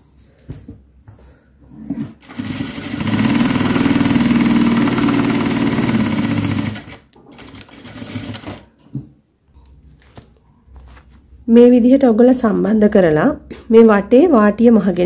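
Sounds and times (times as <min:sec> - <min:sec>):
sewing machine stitching: 0:02.2 - 0:08.7
fabric rustling: 0:09.9 - 0:11.4.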